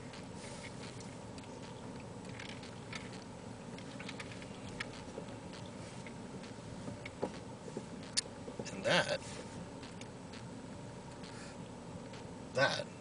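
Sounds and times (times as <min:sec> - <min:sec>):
engine and road hum: 0:00.0 - 0:13.0
faint light ticks and rustles: 0:00.2 - 0:10.1.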